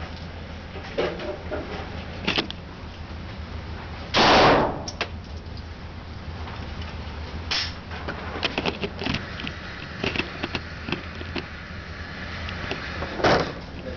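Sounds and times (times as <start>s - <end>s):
steady low hum: 0.0s - 13.9s
gunshot indoors: 4.2s - 4.9s.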